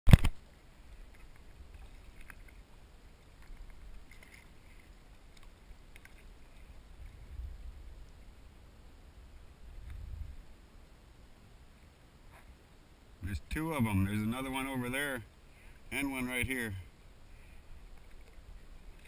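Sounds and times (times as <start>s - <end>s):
kayak paddle strokes in water: 0.2s - 7.4s
water splashes and drips: 0.2s - 7.4s.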